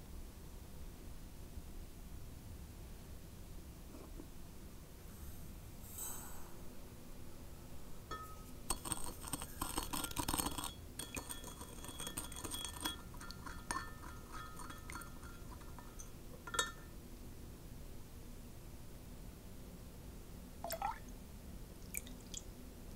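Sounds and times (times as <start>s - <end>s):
stirrer clinking against glass: 8.1s - 16.9s.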